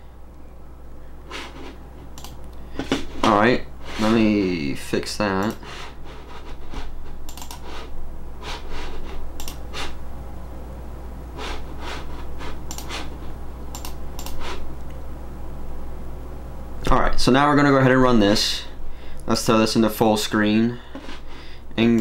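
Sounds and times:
steady low hum: 0.0 - 22.0
mouse and keyboard clicks: 7.3 - 7.7, 12.7 - 13.0, 13.7 - 14.4.

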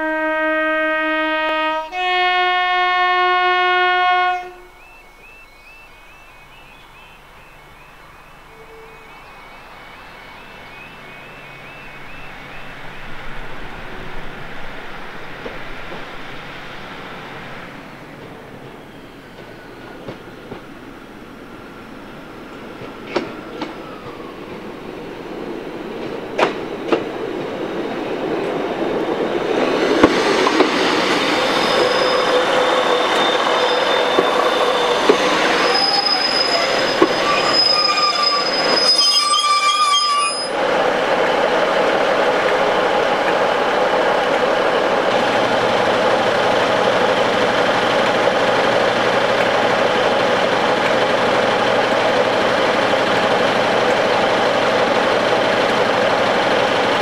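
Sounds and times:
train approaching: 0.0 - 57.0
train brakes squealing: 4.6 - 14.2, 18.5 - 20.5, 27.8 - 40.6
train wheels clicking: 14.3 - 20.9, 22.5 - 57.0
diesel engines idling: 40.7 - 57.0.

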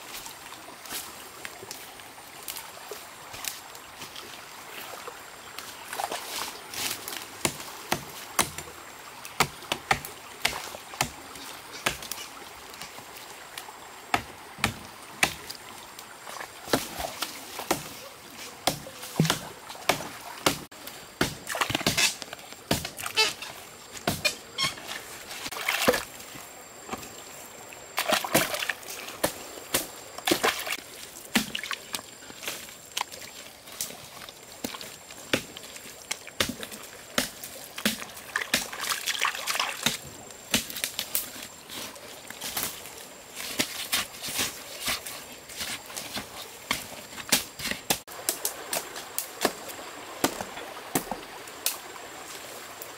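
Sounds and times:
water splashing and sloshing: 0.0 - 52.9
machete chopping tree trunk: 7.4 - 8.7, 9.4 - 11.2, 11.8 - 12.2, 14.1 - 15.5, 18.6 - 23.2, 36.4 - 38.8, 39.8 - 40.8
stick digging into mud: 18.6 - 26.1, 36.4 - 41.1.

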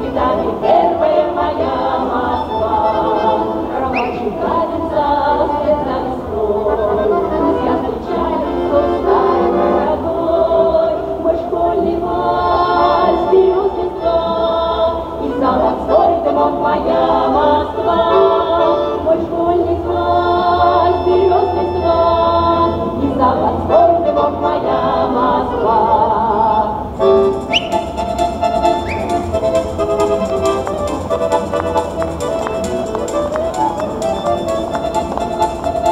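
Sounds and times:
women singing folk song in harmony: 0.0 - 27.7.

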